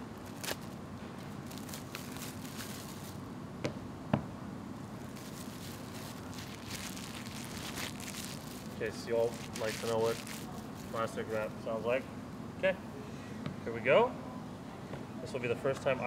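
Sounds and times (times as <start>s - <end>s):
plastic wrap crackling: 0.0s - 3.2s, 5.0s - 11.3s.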